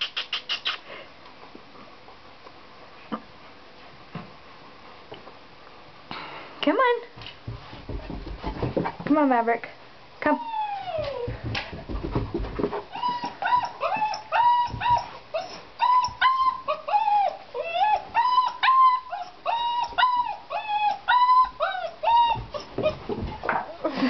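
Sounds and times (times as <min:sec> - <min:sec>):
puppy whining: 0:10.4 - 0:11.5, 0:12.8 - 0:23.8.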